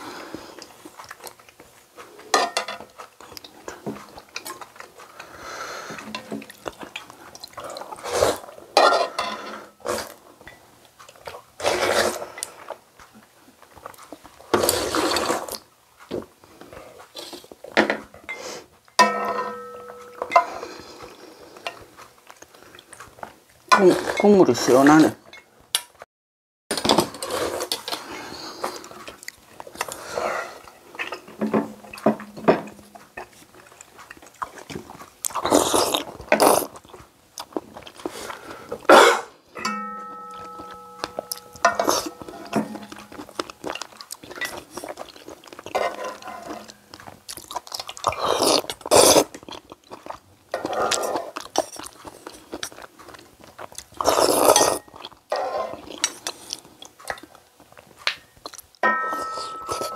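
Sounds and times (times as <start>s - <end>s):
loud slurping and chewing: 0.0s - 2.3s, 3.0s - 8.7s, 9.4s - 10.3s, 11.0s - 17.6s, 32.8s - 39.4s, 41.3s - 58.8s
utensils clinking against bowl: 2.3s - 3.1s, 8.8s - 10.6s, 17.8s - 20.9s, 38.9s - 45.1s, 58.8s - 59.9s
pitched ringing tone: 39.6s - 43.0s.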